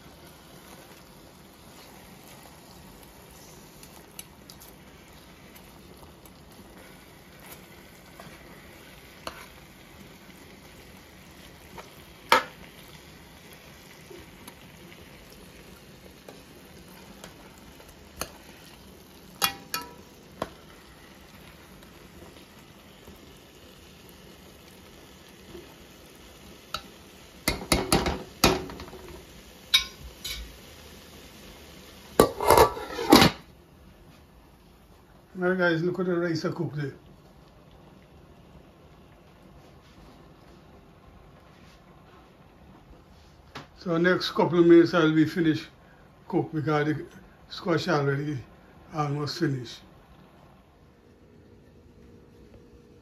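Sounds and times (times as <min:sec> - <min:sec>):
faint sizzling: 0:00.0 - 0:53.0
spoon knocking against pot: 0:19.4 - 0:20.0, 0:27.5 - 0:28.9, 0:29.7 - 0:30.5
metal spoon scraping a pot: 0:32.2 - 0:33.3.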